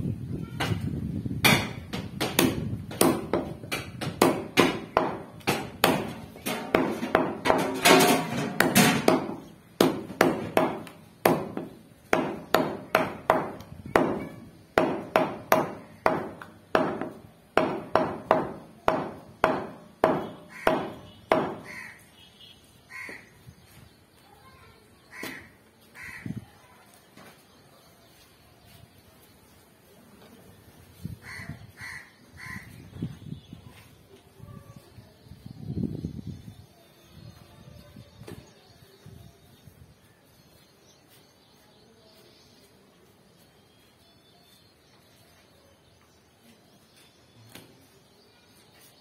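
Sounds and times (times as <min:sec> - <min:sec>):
cleaver chopping on wood block: 0:01.4 - 0:07.7, 0:08.6 - 0:21.8.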